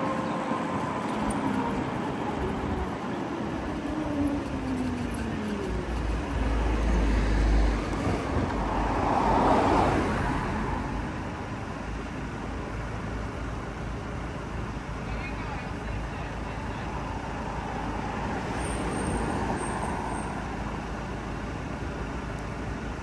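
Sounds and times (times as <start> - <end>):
road traffic: 0.0 - 23.0
vehicle passing close by: 1.0 - 11.0.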